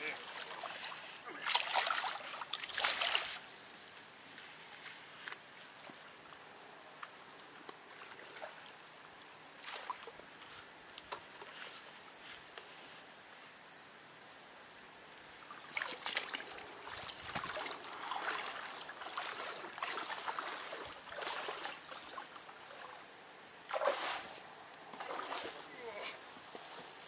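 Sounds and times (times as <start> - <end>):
water splashing: 0.0 - 3.5, 9.6 - 10.2, 15.5 - 23.0, 23.7 - 24.3, 25.0 - 26.0
water trickling: 15.4 - 23.0.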